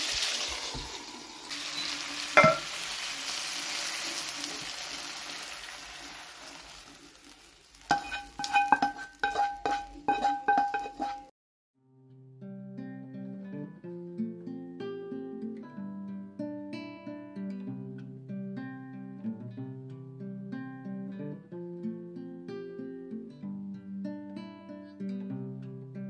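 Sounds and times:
vegetables sizzling in oil: 0.0 - 11.3
metal clinking against glass bowl: 2.4 - 2.7, 7.9 - 11.3.

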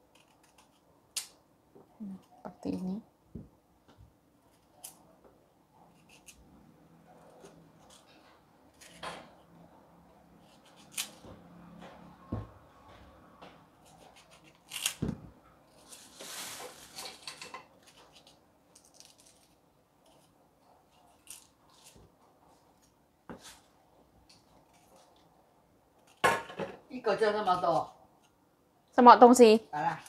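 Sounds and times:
knife cutting crisp fruit: 0.0 - 1.4, 10.4 - 11.5, 13.8 - 15.2
knife scraping: 5.8 - 6.4, 13.8 - 15.0.

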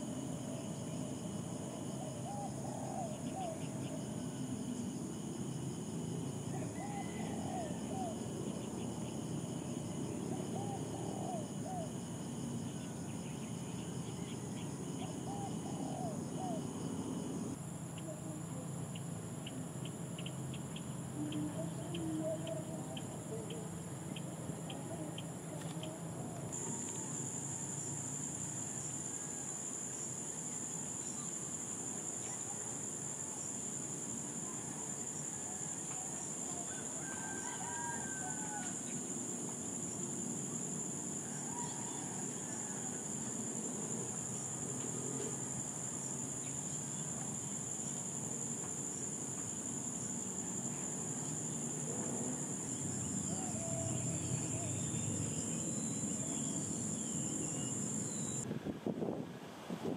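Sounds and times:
higher insect tone: 0.0 - 58.4
distant rooster crowing: 6.5 - 8.1, 35.3 - 39.0, 41.2 - 43.4
high-pitched insect drone: 34.9 - 58.4.

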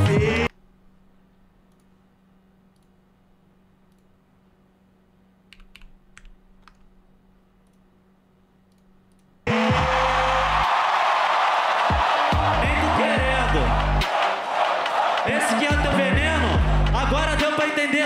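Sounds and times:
loud music beat: 0.0 - 0.5, 9.5 - 18.0
low steady hum: 0.5 - 9.4
computer clicks: 5.5 - 6.9
crowd noise: 9.5 - 18.0.

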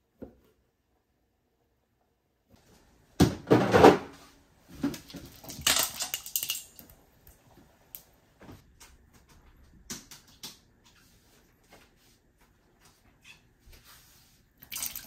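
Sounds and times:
ice cubes clattering into a metal bowl: 5.3 - 6.9
water splashing: 14.6 - 15.0.

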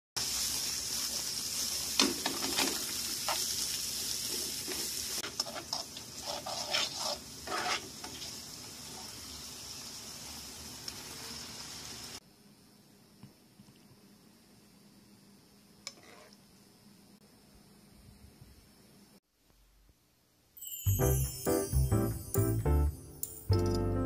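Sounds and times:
food sizzling in a frying pan: 0.2 - 12.2
spatula scraping and knocking pan: 4.3 - 8.4.

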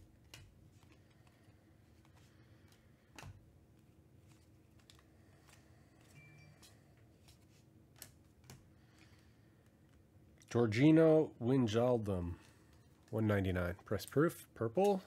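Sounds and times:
trading cards flicking and sliding: 0.0 - 10.1.

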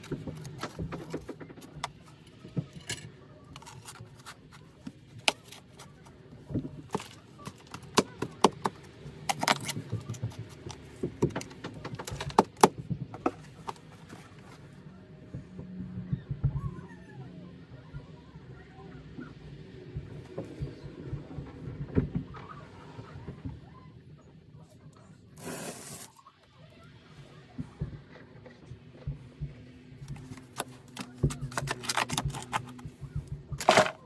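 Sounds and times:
shovel scraping stony soil: 25.4 - 26.2.

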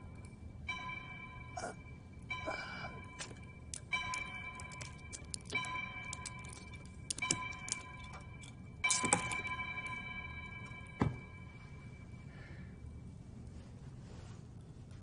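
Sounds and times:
ringing metallic tone: 0.0 - 12.9
handcuff chain clinking: 3.2 - 10.0.

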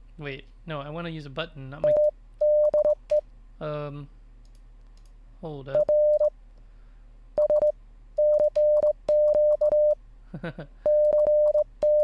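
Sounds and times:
morse code beeps: 1.8 - 3.2, 5.8 - 6.3, 7.4 - 10.0, 10.9 - 12.0.

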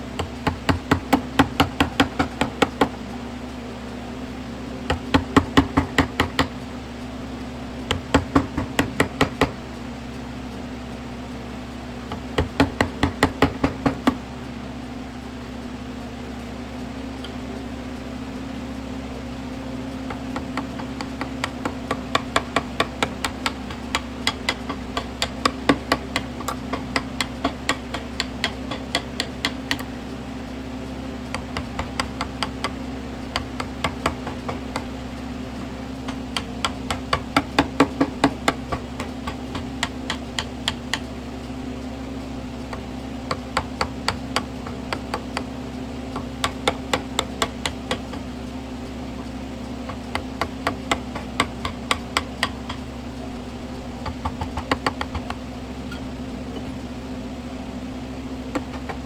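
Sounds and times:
low hum: 0.0 - 59.0
chisel knocking into wood: 0.2 - 3.0, 4.9 - 6.5, 7.9 - 9.6, 12.1 - 14.2, 20.1 - 29.9, 36.1 - 41.0, 42.7 - 45.5, 46.2 - 48.1, 49.9 - 52.8, 54.0 - 55.3.

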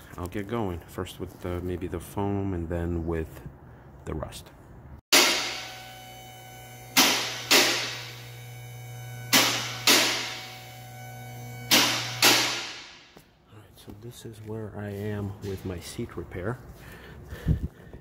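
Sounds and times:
hydraulic power unit humming: 5.1 - 13.2.

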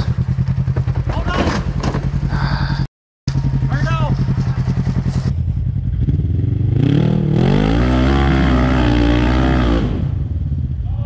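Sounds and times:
utv engine revving: 3.3 - 10.9.

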